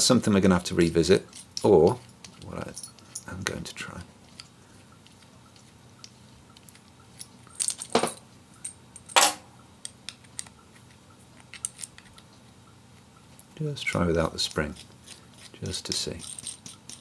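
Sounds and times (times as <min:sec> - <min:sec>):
small steel parts clinking: 0:00.6 - 0:03.6, 0:06.8 - 0:12.3, 0:13.8 - 0:17.0.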